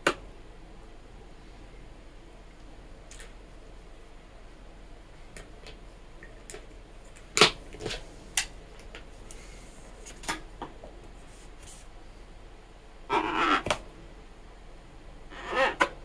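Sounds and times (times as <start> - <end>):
marker squeaking on balloon: 13.1 - 13.7, 15.3 - 15.9.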